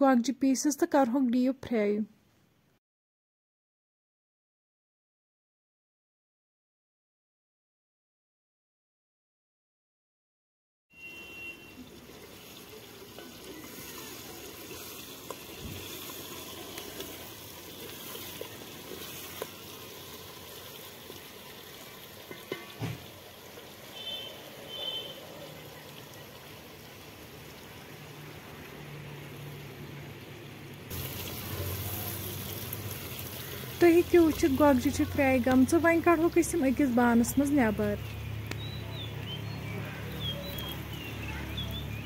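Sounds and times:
oil sizzling: 0:11.0 - 0:39.4, 0:40.1 - 0:42.0.

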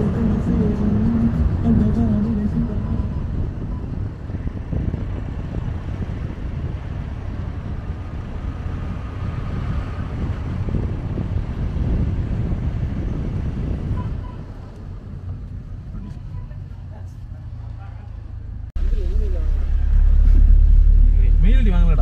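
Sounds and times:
wind noise on microphone: 0:00.0 - 0:16.4
vehicle engine and road noise: 0:00.0 - 0:22.0.

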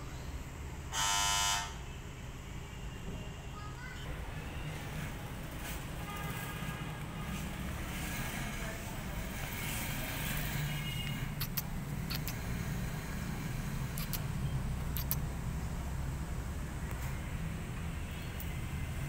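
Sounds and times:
road traffic hum: 0:00.0 - 0:19.0
sharp clicks: 0:11.0 - 0:12.6, 0:13.8 - 0:15.3.

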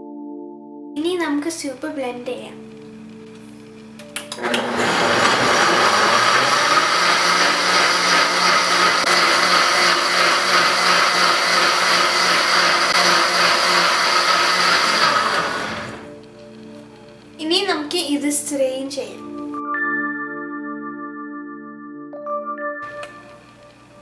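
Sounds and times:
blender motor running: 0:04.3 - 0:16.2.

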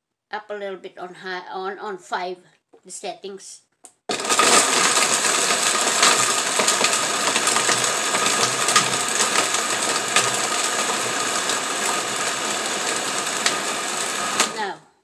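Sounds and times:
ice rattling in blender jar: 0:04.1 - 0:14.7
blender running on high: 0:04.1 - 0:14.9.

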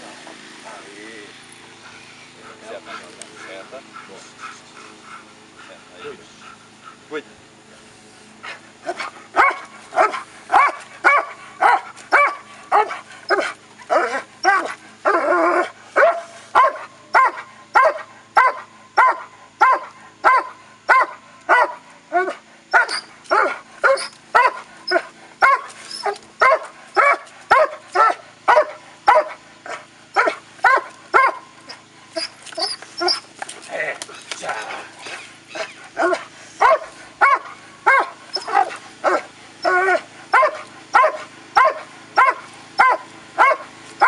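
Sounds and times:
dog barking: 0:08.9 - 0:31.5, 0:35.6 - 0:43.7.

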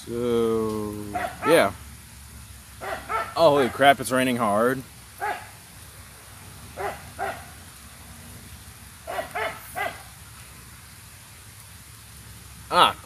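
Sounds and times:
hard rain hissing: 0:00.0 - 0:13.0
dog barking: 0:01.1 - 0:01.7, 0:02.8 - 0:03.8, 0:05.2 - 0:05.6, 0:06.8 - 0:07.6, 0:09.0 - 0:10.1.

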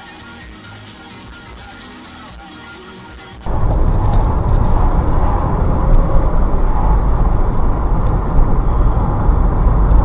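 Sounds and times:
car engine and tyre rumble: 0:03.4 - 0:10.0.

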